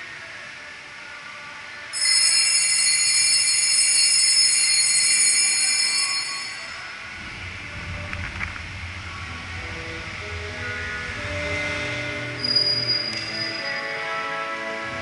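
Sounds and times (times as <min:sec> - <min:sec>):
altar bell ringing: 0:01.9 - 0:07.1, 0:12.4 - 0:14.1.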